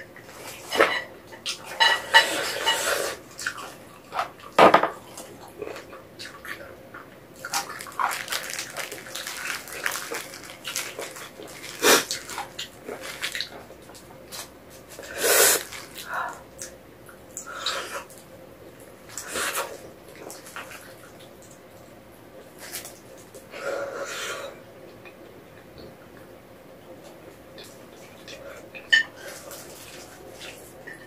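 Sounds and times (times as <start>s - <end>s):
wet chewing and sucking: 7.4s - 18.2s.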